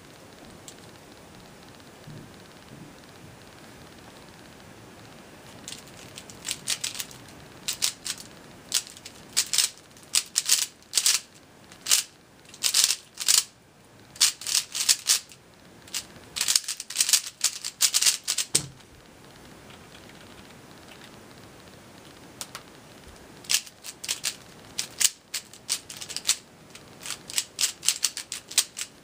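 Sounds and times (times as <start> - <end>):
plastic puzzle cube clicking: 5.6 - 13.5, 14.2 - 18.7, 23.5 - 28.9
cube thump set down: 18.5 - 18.8.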